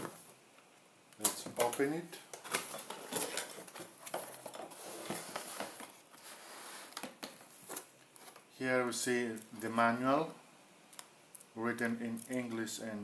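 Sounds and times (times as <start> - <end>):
paper and packing rustling: 1.6 - 8.5.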